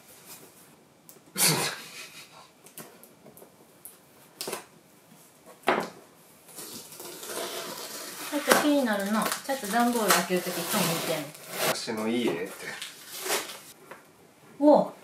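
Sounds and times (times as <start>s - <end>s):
cardboard scraping and rustling: 10.0s - 11.8s, 13.0s - 13.7s.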